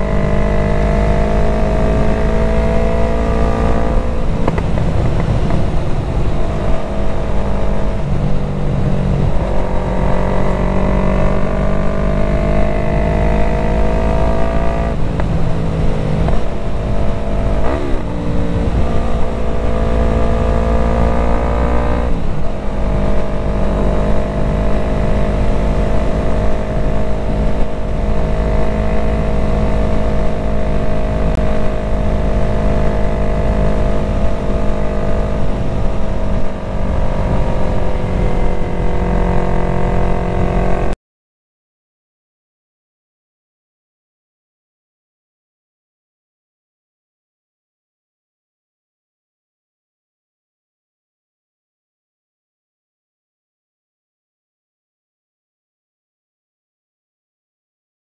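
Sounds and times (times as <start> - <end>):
motorcycle engine running: 0.0 - 41.0
wind rush: 1.4 - 11.7, 14.1 - 21.0, 33.5 - 40.8.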